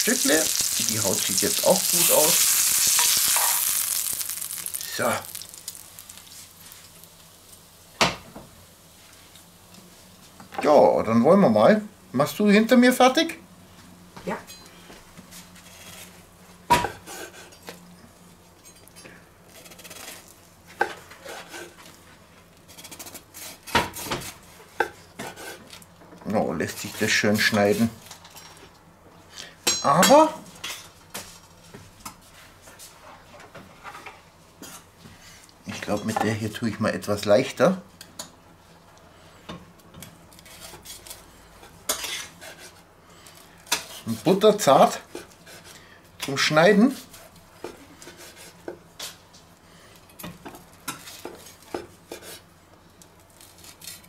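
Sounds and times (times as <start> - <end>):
knife and fork scraping: 41.9 - 42.8.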